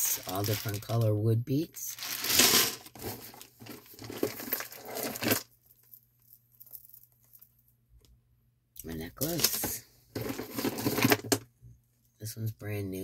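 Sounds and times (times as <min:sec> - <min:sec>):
bag of beads crinkling: 0:00.0 - 0:01.1, 0:01.7 - 0:07.5.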